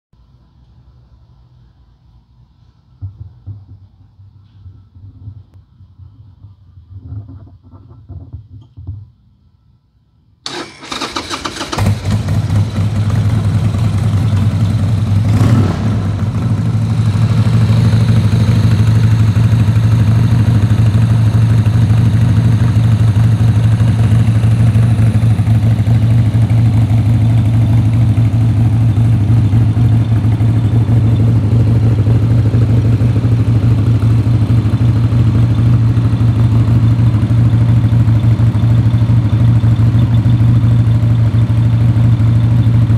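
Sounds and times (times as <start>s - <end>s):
motorcycle starter cranking: 10.4s - 14.7s
motorcycle engine revving and idling: 10.5s - 42.9s.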